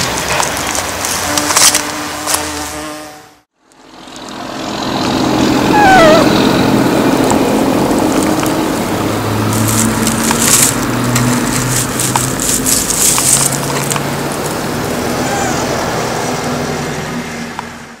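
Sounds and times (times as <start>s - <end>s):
pine needles and twigs crackling: 0.0s - 2.8s, 7.0s - 15.7s.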